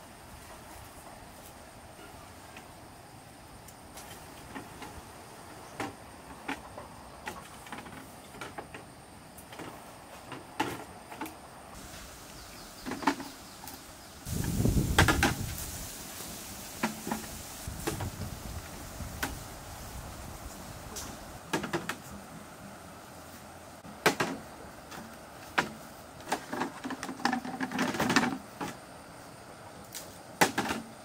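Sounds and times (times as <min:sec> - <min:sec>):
bamboo poles clattering: 0:03.9 - 0:12.1, 0:12.8 - 0:19.9, 0:20.9 - 0:22.2, 0:23.8 - 0:28.9, 0:29.9 - 0:31.0
bamboo poles knocking: 0:14.4 - 0:15.6, 0:16.7 - 0:18.1, 0:21.5 - 0:22.1, 0:23.8 - 0:28.8, 0:30.4 - 0:30.9.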